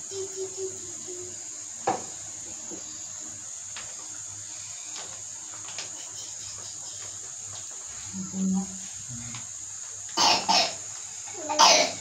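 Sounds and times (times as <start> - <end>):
high-pitched insect chirring: 0.0 - 1.8, 5.9 - 8.6.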